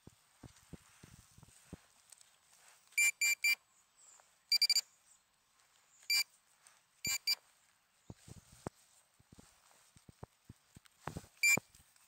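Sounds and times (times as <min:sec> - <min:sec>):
pinpointer beeping: 0:03.0 - 0:03.6, 0:04.5 - 0:04.8, 0:07.0 - 0:07.4.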